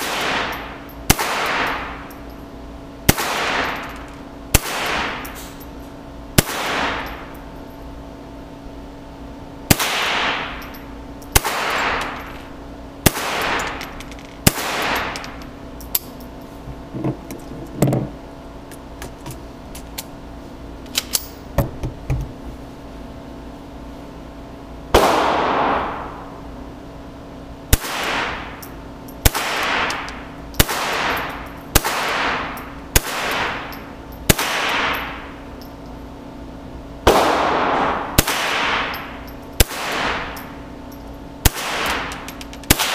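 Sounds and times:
rifle shots echoing: 0:00.0 - 0:02.0, 0:03.1 - 0:03.8, 0:04.5 - 0:05.2, 0:06.4 - 0:07.2, 0:09.7 - 0:10.6, 0:11.3 - 0:12.2, 0:13.0 - 0:13.8, 0:14.4 - 0:15.2, 0:25.0 - 0:26.0, 0:27.7 - 0:28.5, 0:29.2 - 0:33.7, 0:34.3 - 0:35.2, 0:37.0 - 0:40.4, 0:41.4 - 0:42.9.

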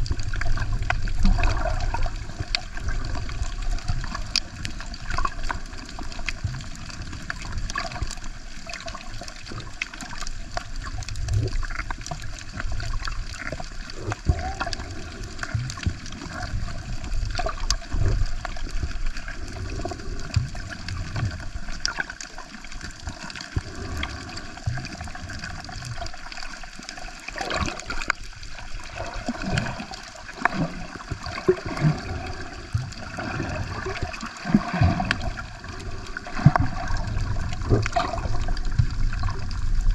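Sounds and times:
water sloshing and gurgling: 0:00.0 - 0:39.9.

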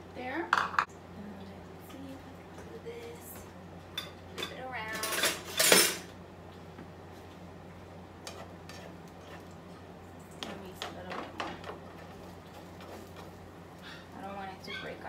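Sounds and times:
steady low hum: 0:00.0 - 0:15.0
kitchen utensils clattering: 0:04.0 - 0:06.1
spatula scraping a frying pan: 0:08.2 - 0:09.5.

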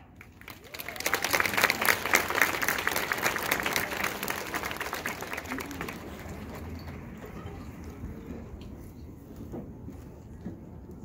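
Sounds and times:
audience applauding: 0:00.2 - 0:07.3.

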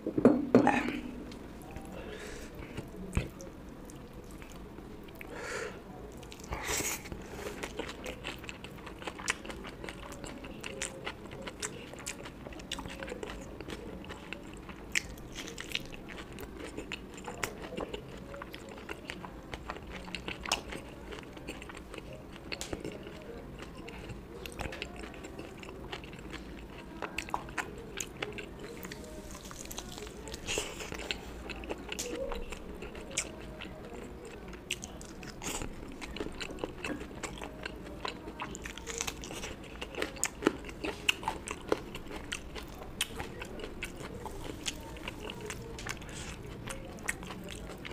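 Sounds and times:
person chewing food: 0:01.1 - 0:05.5, 0:06.1 - 0:47.9.

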